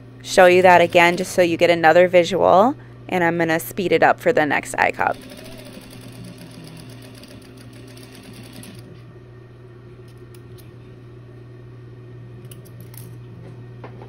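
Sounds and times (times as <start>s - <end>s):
motor humming: 0.0s - 9.3s
sewing machine stitching rapidly: 0.4s - 1.4s, 5.0s - 8.8s.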